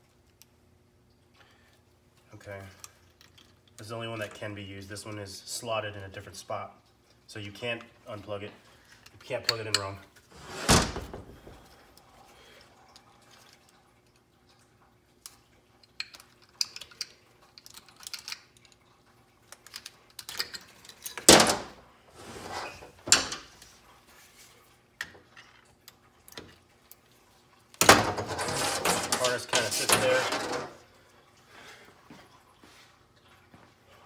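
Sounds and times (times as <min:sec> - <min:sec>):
connectors clicking and clinking: 0:15.8 - 0:18.8.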